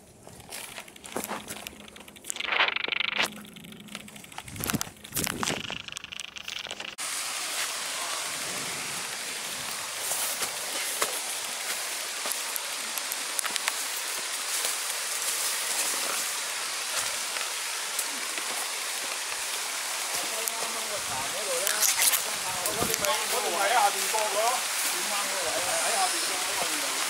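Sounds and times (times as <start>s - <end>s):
footsteps on trail: 0.0s - 5.8s, 9.6s - 12.6s
stream water hissing: 4.6s - 27.0s.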